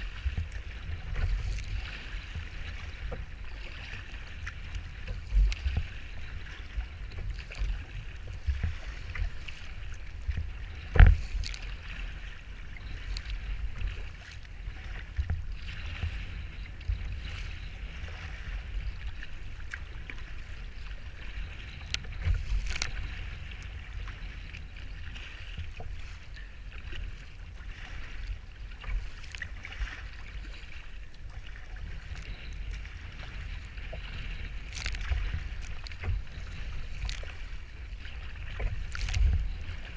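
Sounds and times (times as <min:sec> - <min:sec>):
wind buffeting microphone: 0:00.0 - 0:28.2
choppy water slapping hull: 0:00.0 - 0:39.9.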